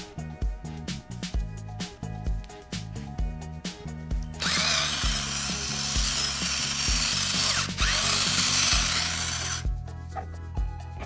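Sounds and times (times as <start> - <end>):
salt grinder grinding: 4.4 - 9.7.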